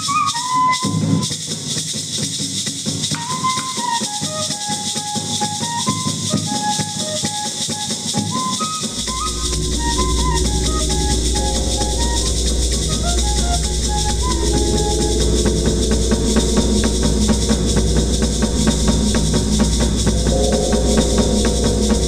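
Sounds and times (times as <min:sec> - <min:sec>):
flute melody: 0:00.0 - 0:01.3, 0:03.2 - 0:22.0
snare drum: 0:00.0 - 0:09.3
maracas: 0:00.0 - 0:22.0
bass drum: 0:08.9 - 0:22.0
low steady rumble: 0:08.9 - 0:22.0.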